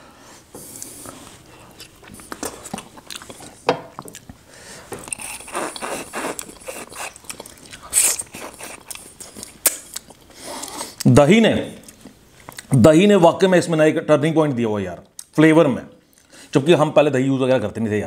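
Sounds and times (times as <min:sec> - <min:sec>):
person chewing meat: 0:00.6 - 0:11.1, 0:11.8 - 0:12.7.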